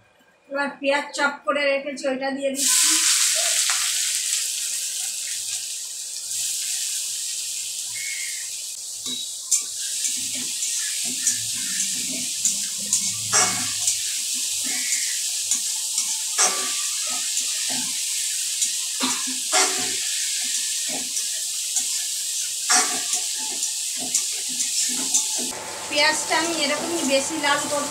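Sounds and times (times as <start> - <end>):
onion sizzling in hot oil: 2.6 - 27.9
metal spatula scraping pan: 9.1 - 18.0.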